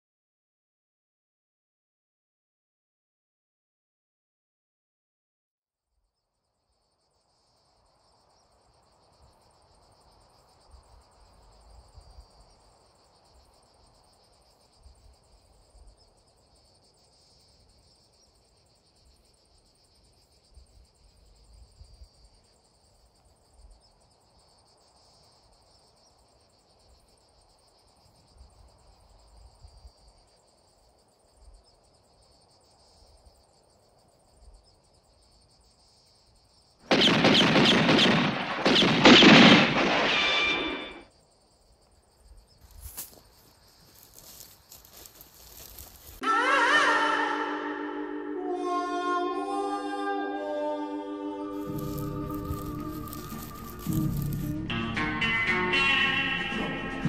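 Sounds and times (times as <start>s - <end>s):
insects chirring: 6.2s - 46.2s, 51.3s - 55.9s.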